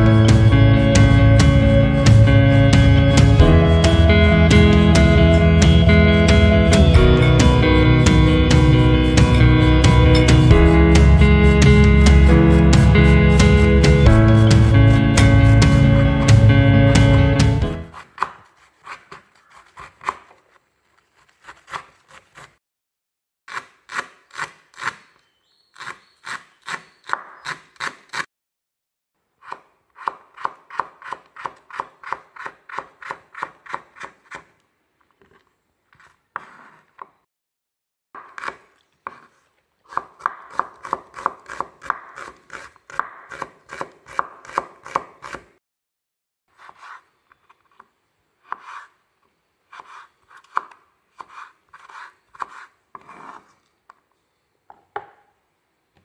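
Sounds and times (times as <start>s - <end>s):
knife chopping on wooden board: 18.0s - 20.4s, 29.4s - 34.5s, 38.2s - 45.5s, 48.5s - 48.9s, 49.7s - 53.5s.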